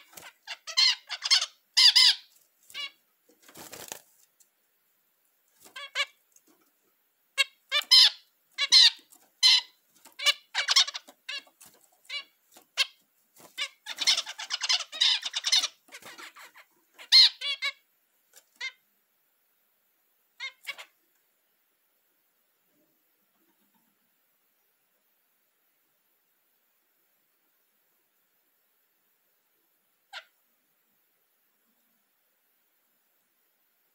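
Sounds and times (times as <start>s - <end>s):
finch singing: 0.0s - 3.0s, 7.4s - 17.8s.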